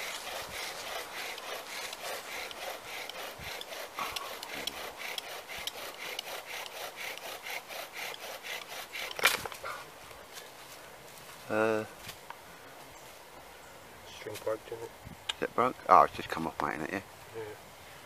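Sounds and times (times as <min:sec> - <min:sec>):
bow drill spindle scraping wood: 0:00.0 - 0:09.5.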